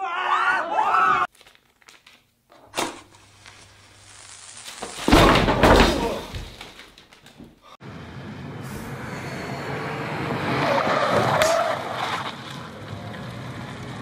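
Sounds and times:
paper banknotes scattering: 0:01.3 - 0:07.4.

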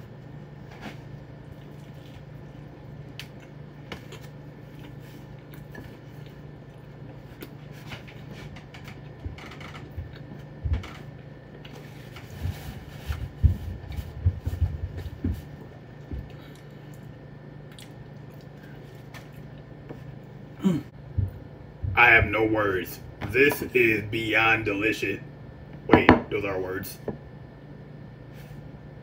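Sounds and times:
person chewing food: 0:00.0 - 0:21.5
steady low hum: 0:00.0 - 0:29.0.

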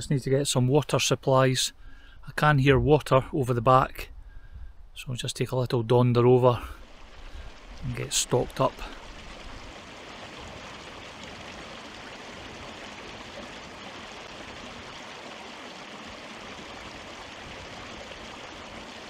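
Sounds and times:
stream running over stones: 0:06.4 - 0:19.0.

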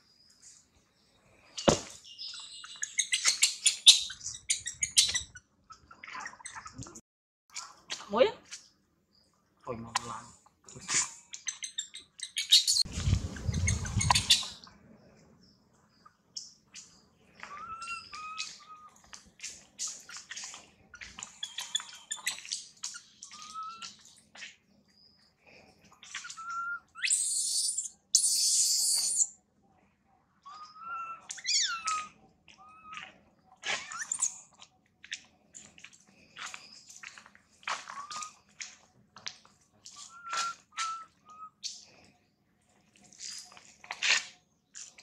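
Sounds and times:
infant monkey squeaking: 0:02.6 - 0:05.4, 0:10.9 - 0:14.6, 0:17.5 - 0:18.9, 0:26.0 - 0:29.4, 0:30.5 - 0:34.5, 0:37.9 - 0:38.4, 0:40.0 - 0:41.5.

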